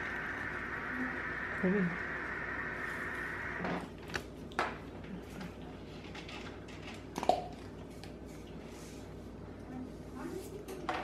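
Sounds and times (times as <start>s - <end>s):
steady hiss: 0.0s - 3.8s.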